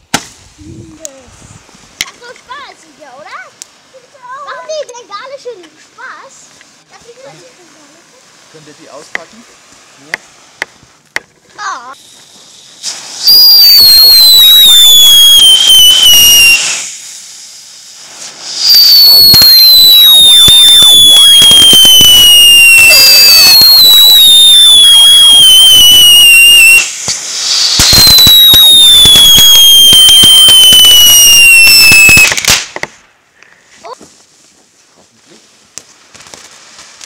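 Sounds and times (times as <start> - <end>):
sparks crackling: 0.0 - 33.2, 33.9 - 37.0
firework fountain whistling: 11.6 - 33.0.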